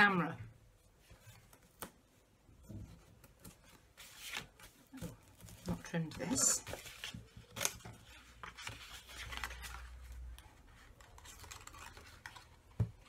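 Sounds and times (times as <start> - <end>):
card rustling and scraping: 2.9 - 13.0.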